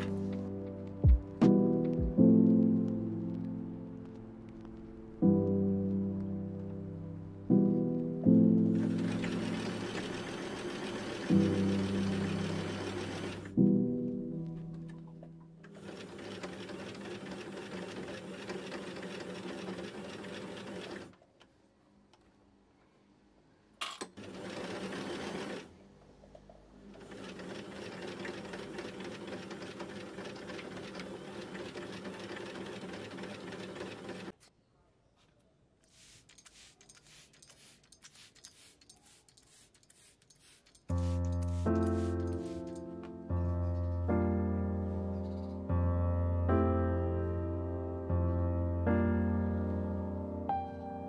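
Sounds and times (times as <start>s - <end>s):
sewing machine stitching: 8.7s - 13.5s, 15.7s - 21.2s, 23.8s - 25.7s, 26.9s - 34.4s, 36.6s - 42.8s.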